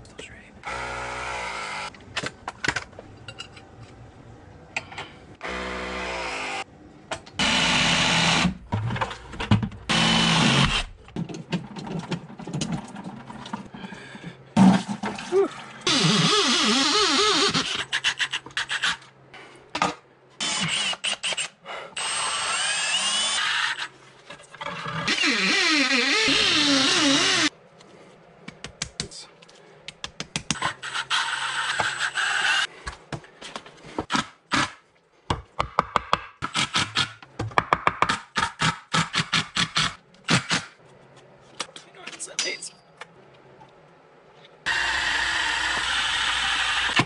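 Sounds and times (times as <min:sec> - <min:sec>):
drill boring into concrete: 0:25.1 - 0:27.5, 0:44.7 - 0:47.0.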